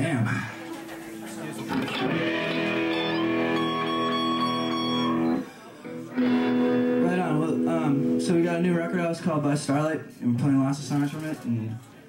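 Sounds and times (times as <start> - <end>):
electric guitar chords: 1.6 - 8.7.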